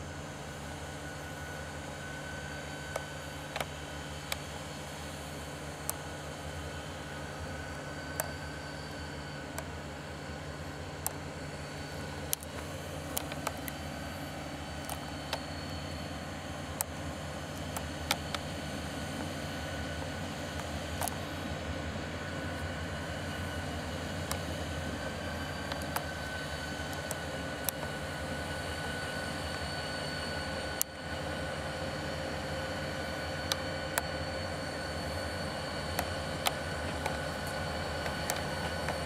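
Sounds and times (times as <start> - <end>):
diesel locomotive engine drone: 0.0 - 39.0
high whine: 0.0 - 39.0
sharp clicks: 12.3 - 13.8.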